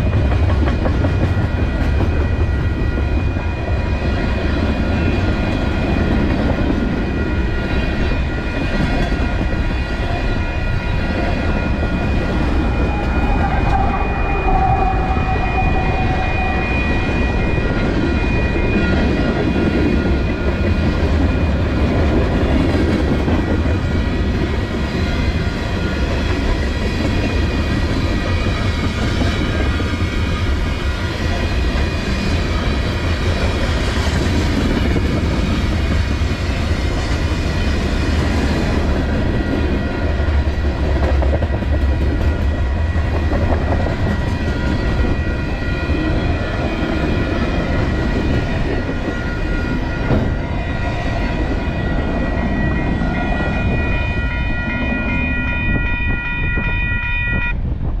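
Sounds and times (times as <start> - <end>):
train wheels rumbling on rails: 0.0 - 58.0
high-pitched ringing tone: 7.0 - 21.6, 44.5 - 57.6.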